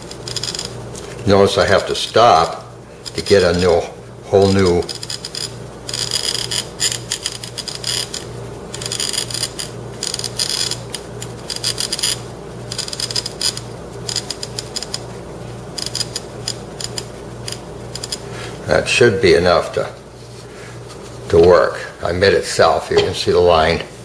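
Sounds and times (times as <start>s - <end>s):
cutting wheel scoring glass bottle: 0.0s - 15.1s, 15.7s - 18.3s.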